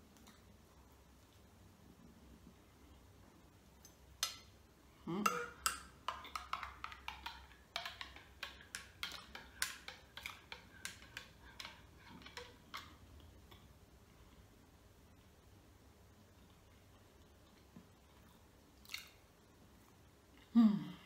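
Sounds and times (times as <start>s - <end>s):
teaspoon clinking in a mug: 5.3s - 12.9s.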